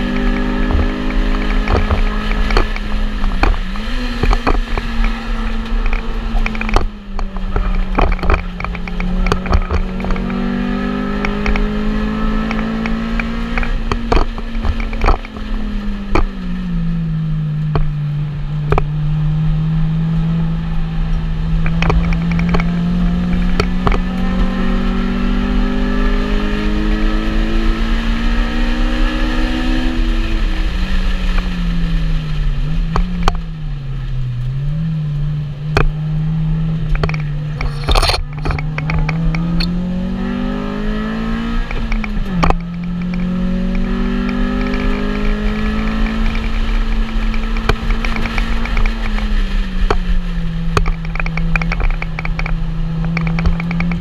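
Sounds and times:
clicks and rattles: 0.0s - 10.4s, 36.8s - 39.8s, 41.7s - 50.0s, 50.7s - 54.0s
car engine revving in cabin: 0.0s - 54.0s.

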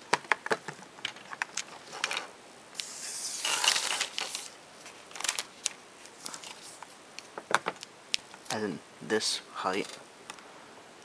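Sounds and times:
paper sheet rustling: 1.8s - 6.9s.

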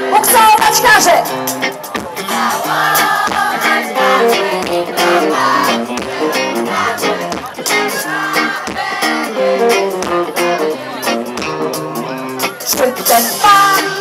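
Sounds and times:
drums: 0.0s - 14.0s
electric guitar: 0.0s - 14.0s
person singing: 12.6s - 14.0s.

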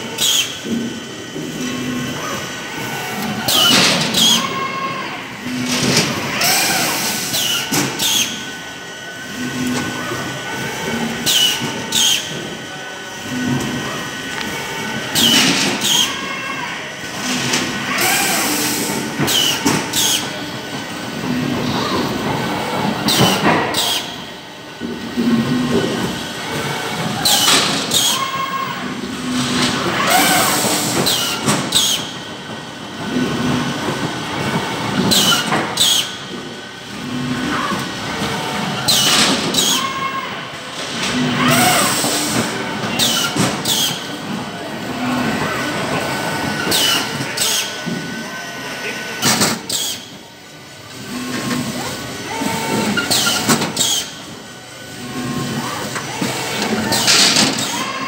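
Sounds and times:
packing machine mechanical din: 0.0s - 58.0s
packing machine clatter: 51.0s - 58.0s.

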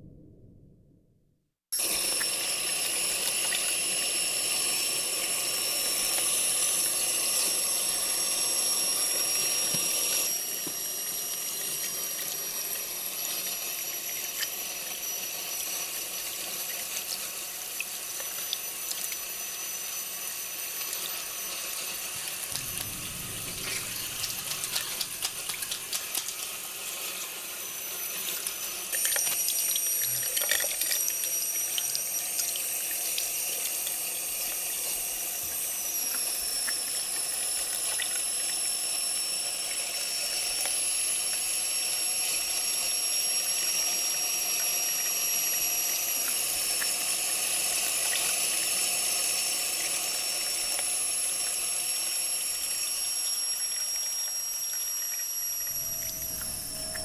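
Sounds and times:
tap water running into sink: 1.8s - 27.4s, 28.2s - 57.0s
high-pitched whine: 22.5s - 26.1s, 52.5s - 57.0s.

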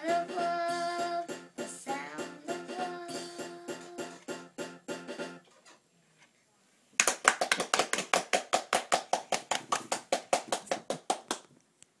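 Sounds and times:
person clapping rapidly: 7.0s - 11.5s.

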